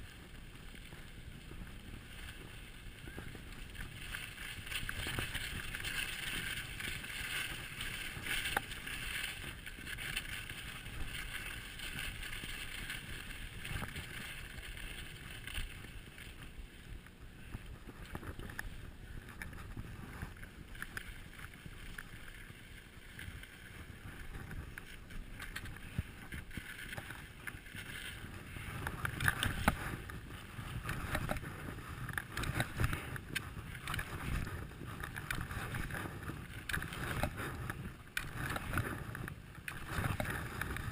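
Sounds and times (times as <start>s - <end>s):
skis scraping on snow: 0.0s - 40.9s
wind on microphone: 0.0s - 40.9s.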